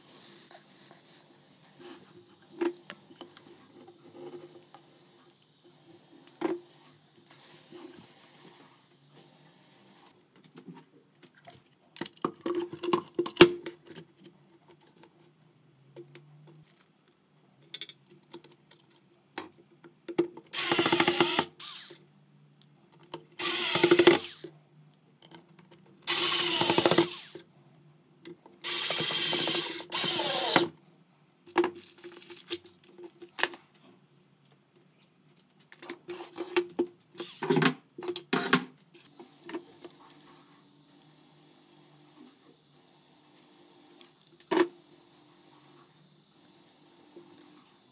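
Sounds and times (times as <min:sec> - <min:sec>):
electric screwdriver driving screws: 0:20.6 - 0:22.0, 0:23.4 - 0:24.5, 0:26.1 - 0:27.4, 0:28.6 - 0:30.7.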